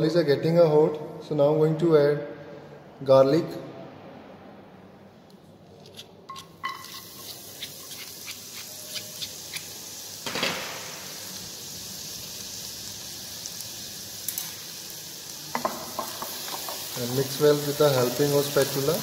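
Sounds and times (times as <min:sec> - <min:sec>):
garlic sizzling in hot oil: 0:06.6 - 0:19.0.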